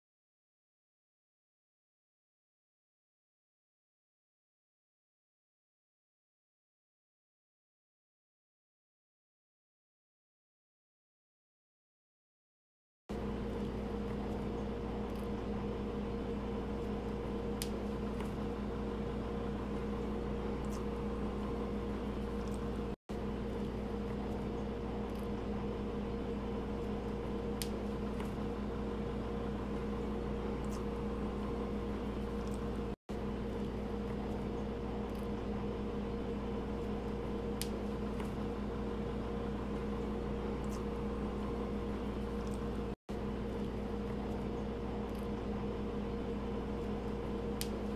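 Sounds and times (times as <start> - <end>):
steady machine hum: 13.1 - 47.9.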